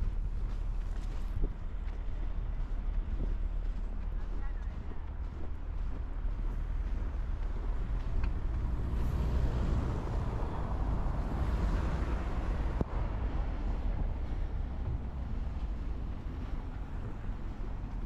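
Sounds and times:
wind rumble on microphone: 0.0s - 18.0s
car passing: 6.1s - 18.0s.

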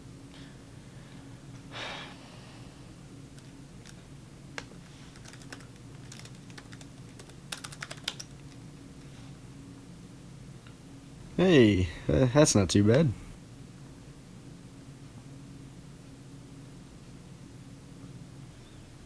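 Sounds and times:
typing on computer keyboard: 5.1s - 8.5s.

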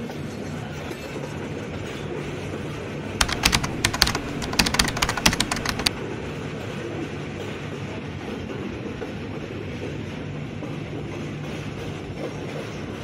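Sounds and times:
rapid sharp clicks: 3.2s - 5.9s.

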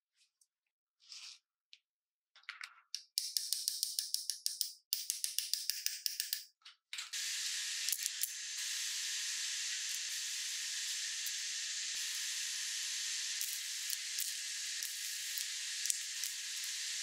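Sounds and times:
welding arc hissing: 7.1s - 17.0s.

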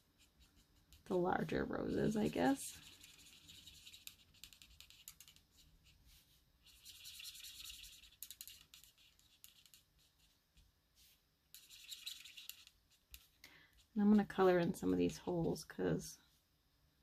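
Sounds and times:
marker scratching on card: 0.2s - 10.4s, 11.0s - 13.4s.

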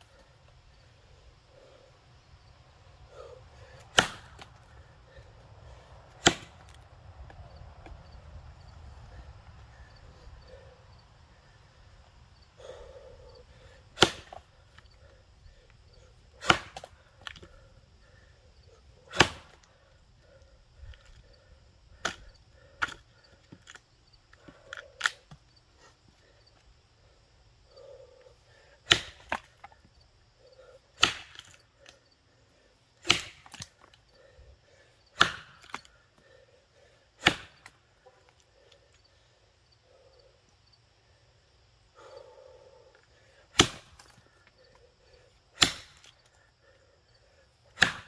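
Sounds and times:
axe chopping into log: 3.9s - 4.5s, 6.2s - 6.8s, 14.0s - 14.4s, 16.4s - 16.9s, 19.1s - 19.7s, 22.0s - 23.0s, 28.9s - 29.5s, 31.0s - 31.6s, 33.0s - 33.7s, 35.2s - 35.9s, 37.2s - 37.7s, 43.5s - 44.1s, 45.6s - 46.1s, 47.7s - 48.0s.

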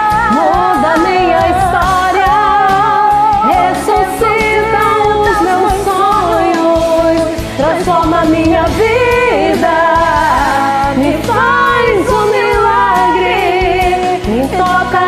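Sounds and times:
karaoke backing track: 0.0s - 15.0s
two women singing a duet: 0.0s - 15.0s.

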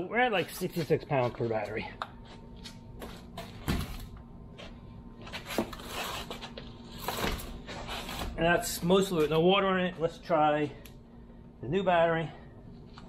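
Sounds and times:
handling and shuffling: 0.3s - 9.5s.

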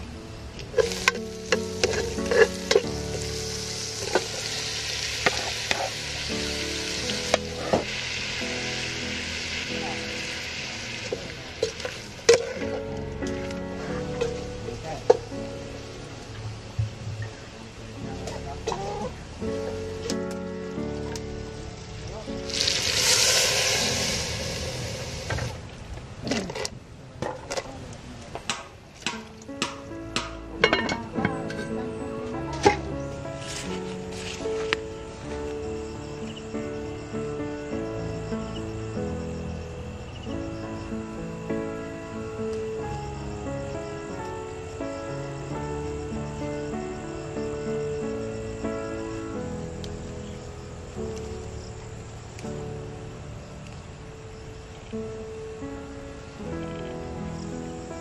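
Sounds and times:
meat sizzling in a metal pot: 0.7s - 15.9s, 21.8s - 25.6s
spatula knocking and scraping pot: 0.8s - 2.9s
broth splashing into pot: 22.5s - 25.6s
dishware clinking against pot: 30.6s - 31.8s.

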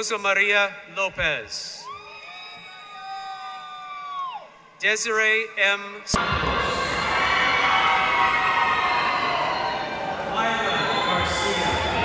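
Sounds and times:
crowd cheering and applauding: 1.8s - 4.5s, 6.1s - 12.0s.

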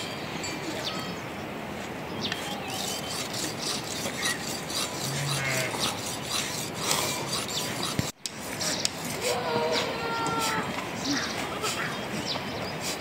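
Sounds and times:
blade scraping on rock: 2.7s - 9.2s.

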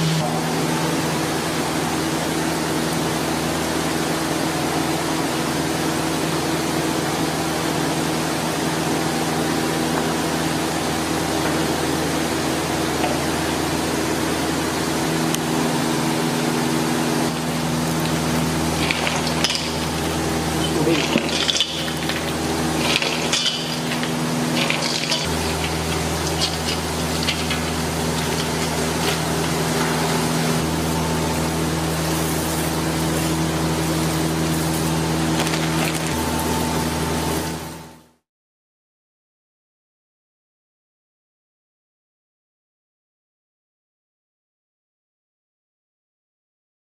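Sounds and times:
steady hum and hiss: 0.0s - 38.1s
utensils clinking against pot: 18.7s - 30.2s.

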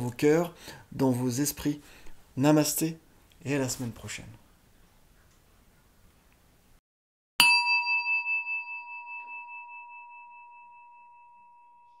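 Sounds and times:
meditation bell ringing: 7.4s - 12.0s.

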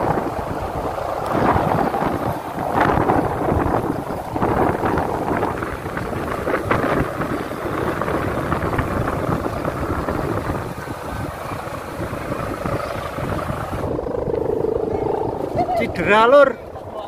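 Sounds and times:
kite hummers buzzing: 0.0s - 17.0s.

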